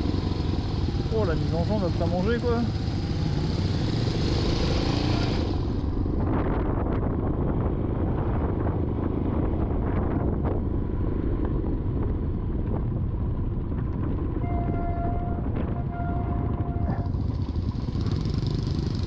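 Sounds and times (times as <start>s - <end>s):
motorcycle engine at low speed: 0.0s - 19.0s
wind buffeting microphone: 4.4s - 19.0s.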